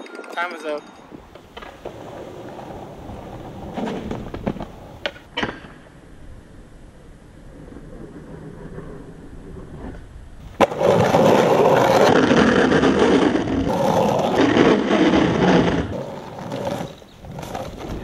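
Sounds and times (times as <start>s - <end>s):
skateboard wheels rolling on concrete: 0.0s - 18.0s
skateboard clack: 1.1s - 6.0s, 9.8s - 18.0s
skateboard scraping on metal rail: 1.2s - 5.8s, 7.6s - 18.0s.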